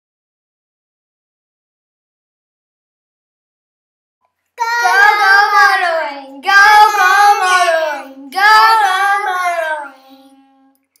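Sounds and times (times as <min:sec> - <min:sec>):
high voice singing: 0:04.6 - 0:09.9.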